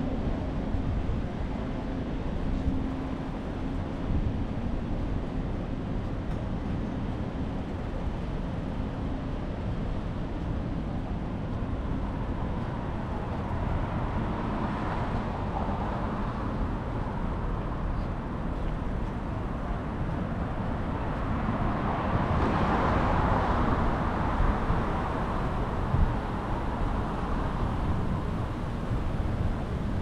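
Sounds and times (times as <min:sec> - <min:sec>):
street traffic noise: 0:00.0 - 0:30.0
wind rumbling on microphone: 0:00.0 - 0:30.0.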